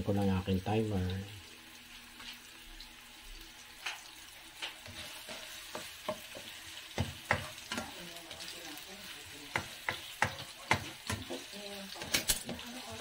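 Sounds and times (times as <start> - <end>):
carrots sizzling in oil: 0.0 - 13.0
spatula knocking against pan: 5.6 - 8.0, 9.5 - 11.4.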